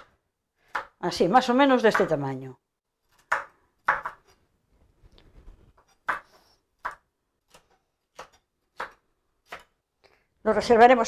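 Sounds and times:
knife chopping on plastic board: 0:00.0 - 0:01.0, 0:03.1 - 0:04.4, 0:06.0 - 0:09.8.

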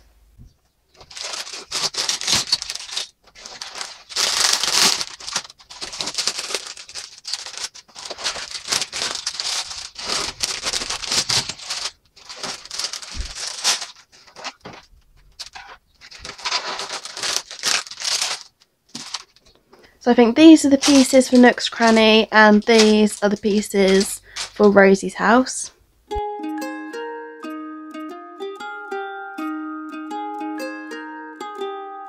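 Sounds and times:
plastic bags crinkling: 0:00.9 - 0:25.6.

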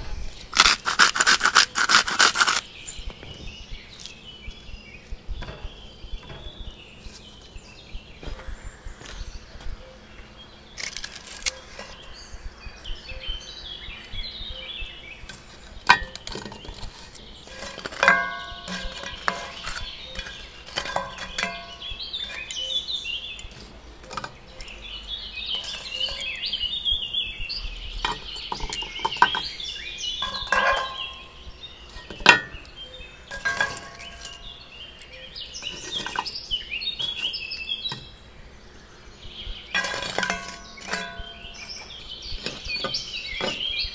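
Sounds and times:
birds chirping: 0:00.0 - 0:43.9
charcoal clinking against iron pans: 0:15.3 - 0:24.9, 0:25.5 - 0:26.6, 0:28.0 - 0:29.6, 0:30.2 - 0:38.2, 0:39.7 - 0:43.9.

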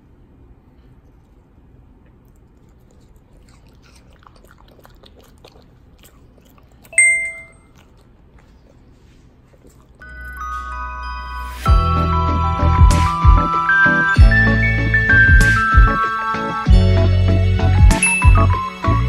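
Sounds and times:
dog chewing wet crunching: 0:02.0 - 0:07.0, 0:07.6 - 0:10.0
bell-like ding: 0:07.0 - 0:07.6.

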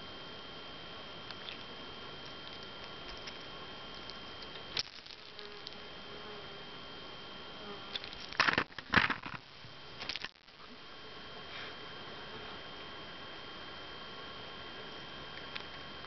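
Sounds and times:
faint high whine: 0:00.0 - 0:16.0
camera rustling and bumping: 0:08.0 - 0:09.4.

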